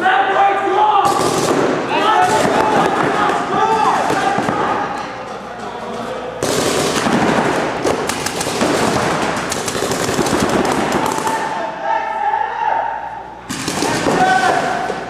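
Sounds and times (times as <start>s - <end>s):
paintball markers firing: 6.4s - 11.5s.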